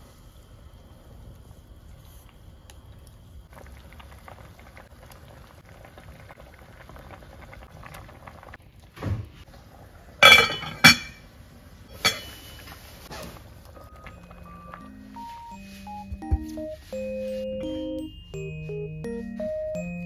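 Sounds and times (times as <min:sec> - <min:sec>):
stew bubbling in pot: 0:00.8 - 0:14.9
ringing clanks against pot: 0:10.2 - 0:11.2, 0:12.0 - 0:12.4.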